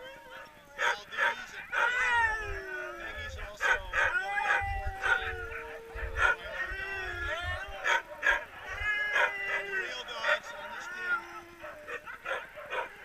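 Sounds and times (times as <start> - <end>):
sled dogs barking and howling: 0.0 - 13.0.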